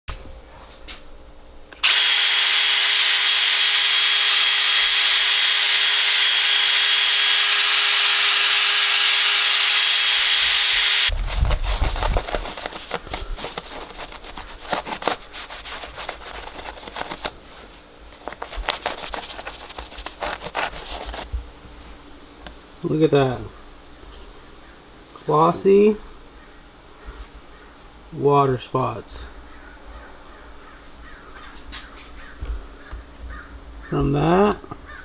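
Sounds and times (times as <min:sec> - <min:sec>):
cordless drill whining: 0:01.8 - 0:11.2
towel rubbing a panel: 0:11.3 - 0:17.3, 0:18.2 - 0:21.3.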